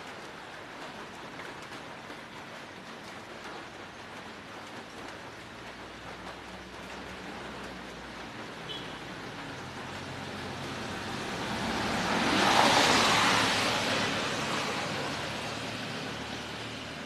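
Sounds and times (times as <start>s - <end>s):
vehicle driving past: 10.1s - 16.8s.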